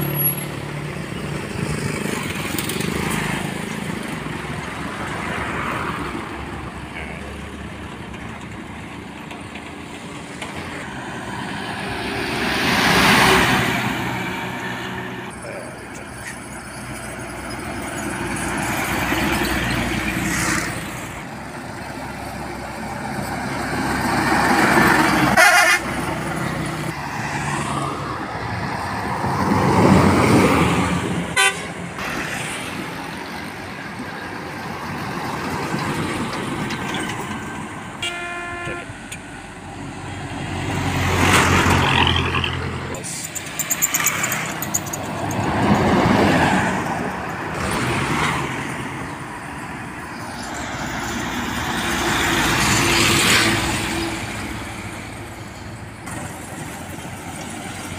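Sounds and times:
traffic passing: 0.0 - 57.9
short horn toot: 38.0 - 38.9.

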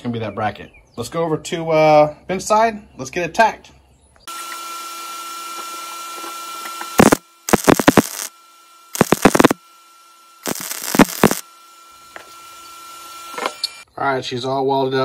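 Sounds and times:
crackling welding arc: 6.9 - 9.6, 10.4 - 11.5
steady electrical hum: 7.0 - 13.8.

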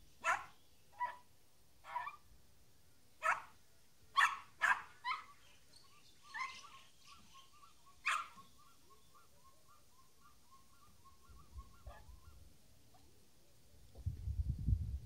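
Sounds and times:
small dog yapping: 4.2 - 5.3, 8.0 - 8.4
faint high chirp: 5.0 - 12.4.

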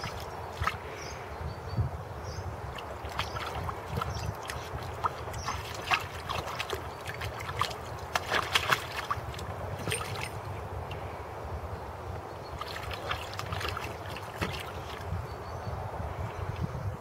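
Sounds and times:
water splashing in paddling pool: 0.0 - 1.0, 2.6 - 11.1, 12.6 - 15.2.

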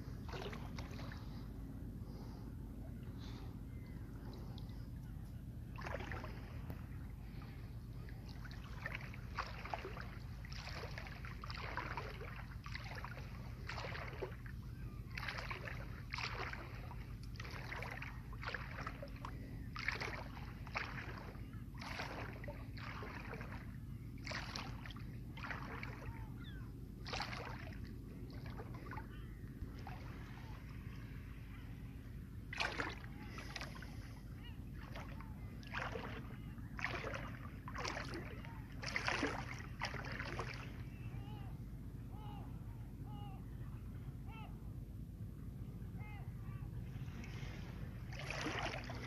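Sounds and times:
water sloshing and splashing: 0.0 - 5.0, 5.7 - 41.5, 46.9 - 49.0
low hum: 0.0 - 49.0.

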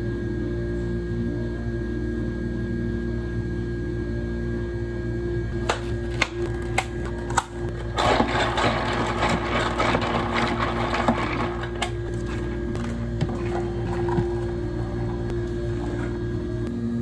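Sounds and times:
steady machine hum: 0.0 - 17.0
plastic crackling: 5.7 - 14.6.

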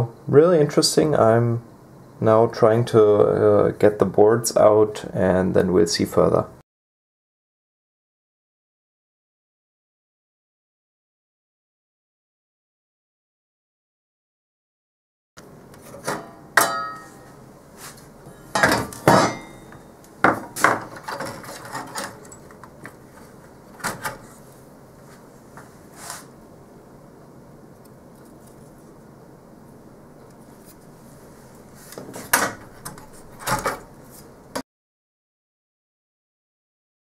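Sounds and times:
metal cover and boards clattering: 15.9 - 17.3, 18.5 - 22.4.

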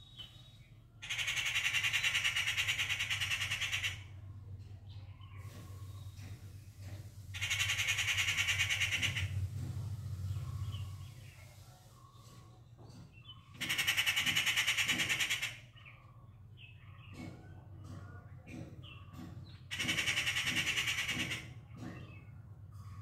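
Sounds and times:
bird rattling calls: 1.0 - 4.3, 5.1 - 11.4, 13.1 - 17.3, 18.5 - 23.0.

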